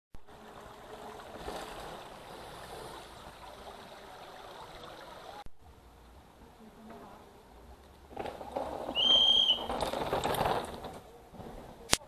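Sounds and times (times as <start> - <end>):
mountain stream babbling: 0.2 - 5.5.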